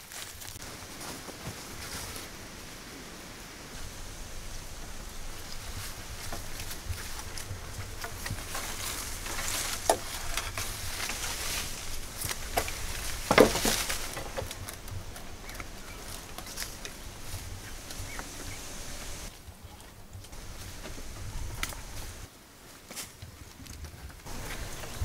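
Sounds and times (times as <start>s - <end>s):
leaves and dry grass rustling: 0.0s - 25.0s
twigs snapping: 5.2s - 18.4s.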